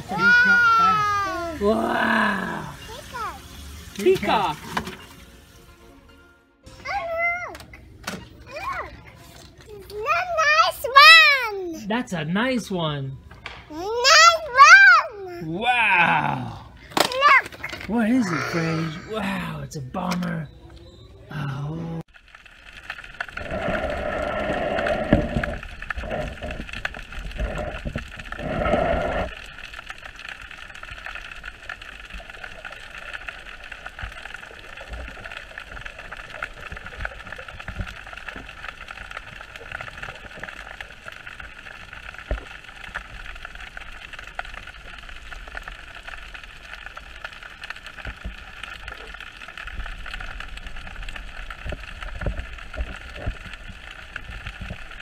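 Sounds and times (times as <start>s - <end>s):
steady underwater hiss: 0.0s - 6.0s, 22.4s - 55.0s
muffled underwater water swishing: 22.2s - 55.0s.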